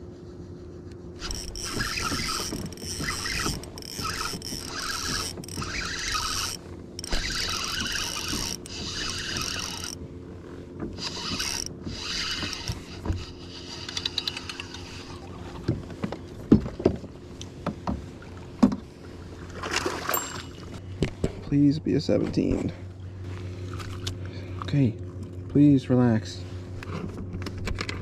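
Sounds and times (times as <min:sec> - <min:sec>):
fishing reel cranking: 0:01.2 - 0:10.0, 0:11.0 - 0:15.1.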